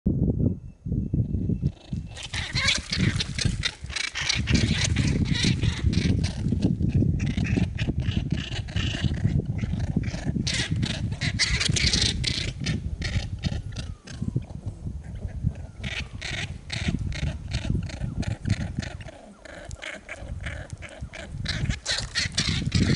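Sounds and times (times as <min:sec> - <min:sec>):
squirrels scrabbling clicks and scuffles: 0:02.1 - 0:06.7, 0:15.8 - 0:22.9.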